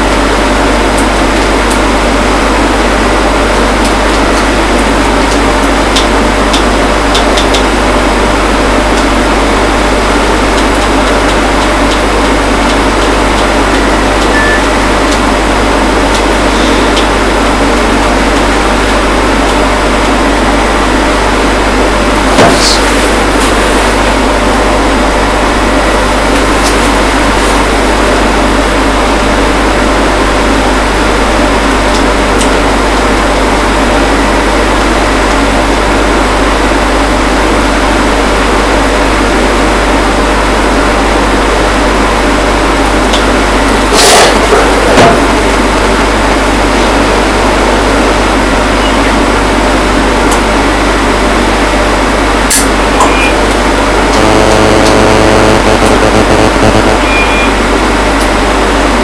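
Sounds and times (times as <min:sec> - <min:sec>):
electrical hum with hiss: 0:00.0 - 0:59.0.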